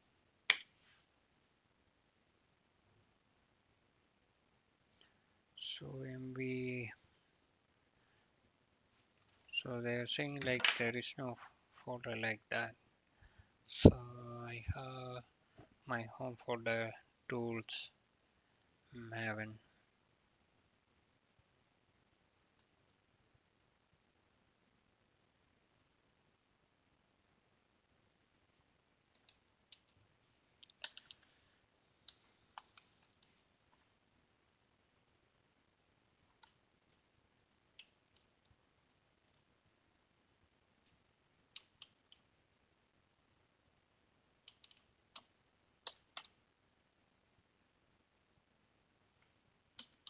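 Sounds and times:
keyboard keystrokes: 30.8s - 31.3s.

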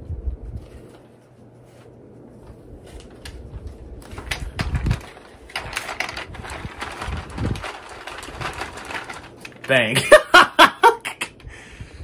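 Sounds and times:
plastic toy clicks and rattles: 4.3s - 9.8s.

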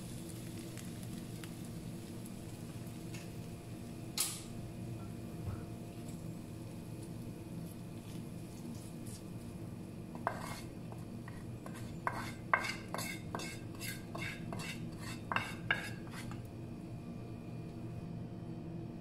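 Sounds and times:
steady low hum: 0.0s - 19.0s
spatula scraping frying pan: 10.2s - 16.4s.

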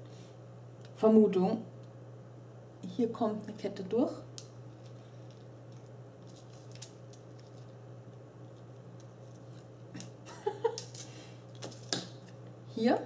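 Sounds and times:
steady low hum: 0.0s - 13.0s
metal ball chain handled: 4.8s - 7.7s.

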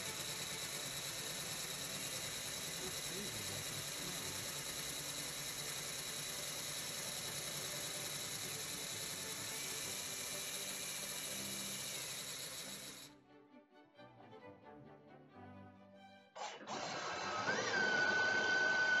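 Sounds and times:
cordless drill whirring: 0.0s - 13.1s, 16.4s - 19.0s
valve grinding against seat: 0.0s - 13.1s.

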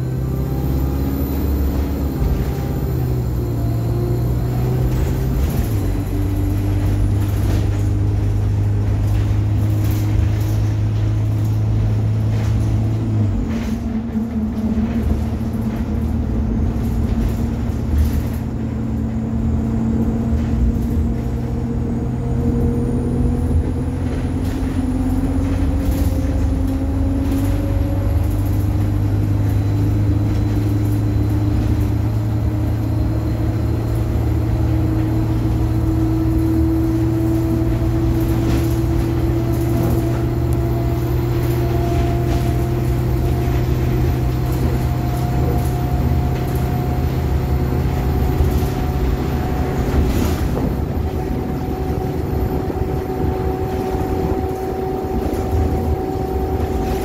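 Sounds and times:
bus engine running: 0.0s - 57.0s
rattles and knocks from bus body: 0.0s - 57.0s.

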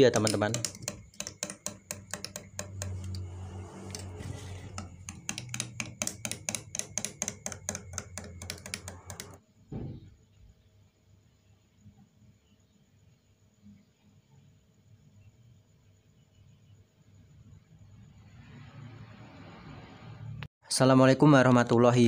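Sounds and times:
teaspoon clinking against glass: 0.0s - 3.3s.

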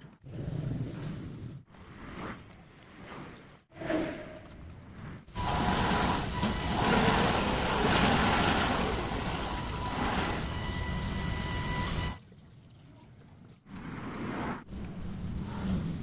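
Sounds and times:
hydraulic pump whining: 5.4s - 12.2s
rough mechanical rattle: 5.4s - 12.2s.

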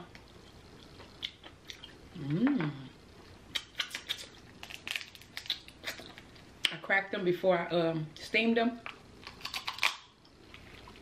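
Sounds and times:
person humming: 2.1s - 3.0s
lobster shell cracking: 3.5s - 6.3s, 9.2s - 10.2s.

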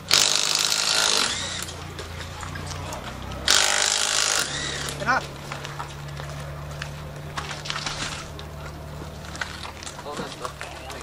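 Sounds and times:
impact wrench hammering: 0.0s - 1.8s, 3.4s - 5.0s.

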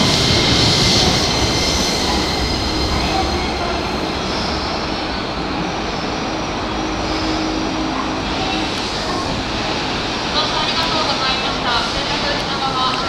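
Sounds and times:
electric train running noise: 0.0s - 13.0s.

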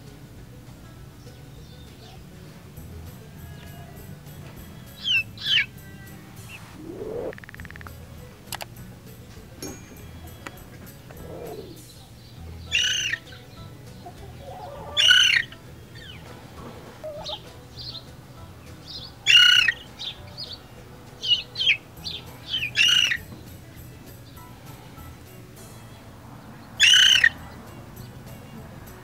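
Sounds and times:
young cockerel crowing: 3.4s - 4.2s
soft chirps: 4.6s - 8.0s, 9.6s - 16.3s, 17.0s - 18.1s.

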